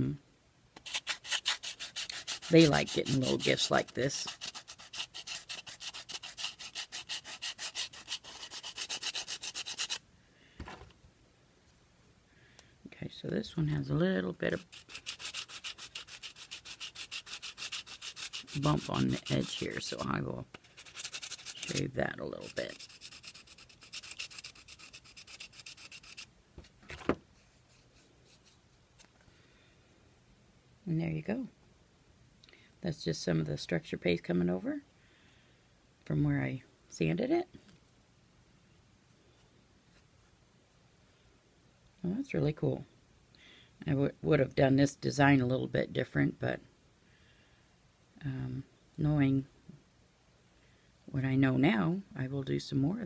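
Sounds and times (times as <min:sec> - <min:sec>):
sanding block scraping resin: 0:00.8 - 0:10.0, 0:14.5 - 0:26.3.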